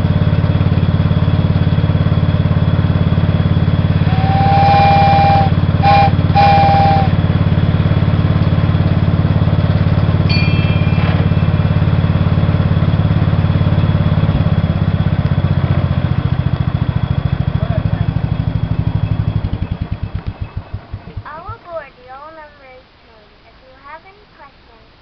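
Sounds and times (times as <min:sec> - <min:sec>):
small engine running: 0:00.0 - 0:21.6
horn toots: 0:04.0 - 0:07.2
high-pitched ring: 0:10.3 - 0:12.4.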